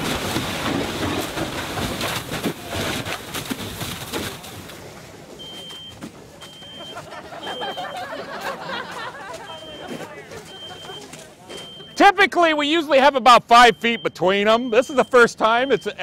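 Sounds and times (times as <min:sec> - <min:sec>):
rush of water and steam: 0:00.0 - 0:05.3
fire crackling: 0:00.0 - 0:05.8
smoke detector beeping: 0:05.4 - 0:08.0, 0:09.4 - 0:12.2, 0:13.6 - 0:16.0.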